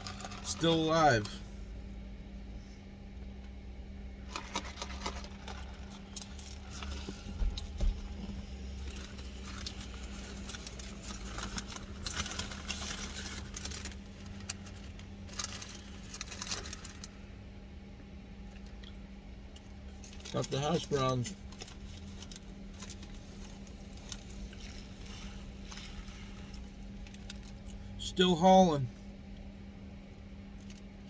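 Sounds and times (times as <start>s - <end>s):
paper wrapper crinkling: 0.0s - 0.8s, 4.2s - 7.2s, 8.7s - 17.2s, 20.0s - 27.7s
steady low hum: 0.0s - 31.0s.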